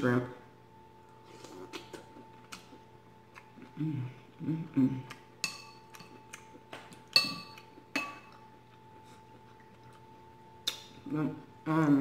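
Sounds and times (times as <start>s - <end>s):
spoon clinking on ceramic bowl: 5.4s - 6.2s, 7.1s - 8.4s.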